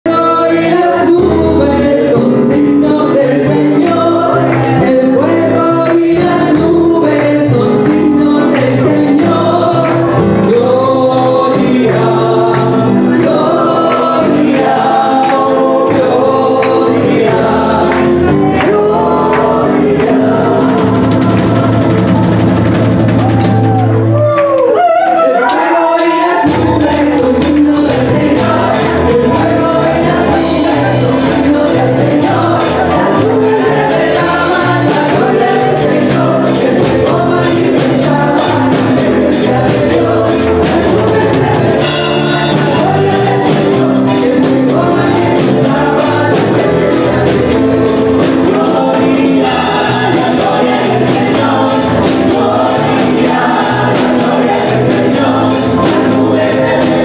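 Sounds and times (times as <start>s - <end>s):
bass line: 0.0s - 24.7s, 26.4s - 57.0s
group singing gospel song: 0.0s - 57.0s
percussive beat: 0.1s - 24.6s, 25.5s - 57.0s.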